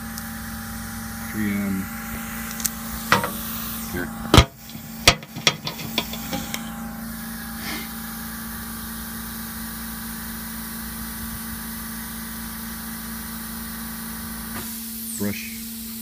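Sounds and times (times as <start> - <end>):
machine hum with hiss: 0.0 - 16.0
clicks and knocks of handled tool: 2.5 - 3.5, 4.4 - 6.6.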